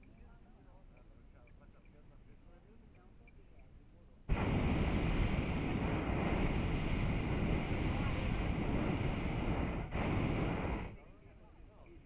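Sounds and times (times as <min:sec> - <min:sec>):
propane burner blast: 0:04.3 - 0:11.2.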